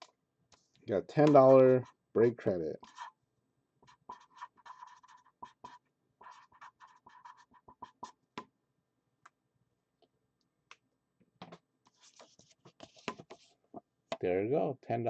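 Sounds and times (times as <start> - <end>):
pen scratching on paper: 2.8 - 3.2, 3.8 - 8.2, 11.9 - 13.5.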